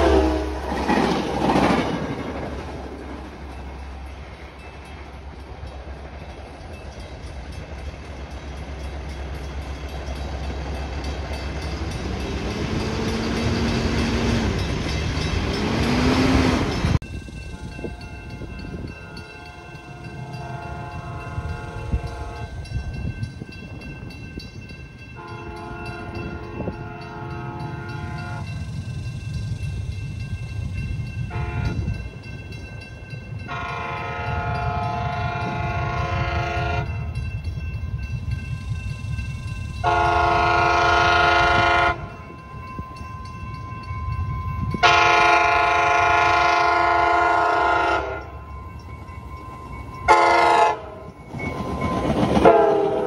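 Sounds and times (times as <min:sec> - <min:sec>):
distant train air horn: 0:00.0 - 0:00.8, 0:19.1 - 0:22.6, 0:25.2 - 0:28.6, 0:31.3 - 0:31.9, 0:33.5 - 0:37.1, 0:39.8 - 0:42.1, 0:44.8 - 0:48.3, 0:50.1 - 0:51.1, 0:52.4 - 0:53.0
train wheels rumbling on rails: 0:00.0 - 0:53.0.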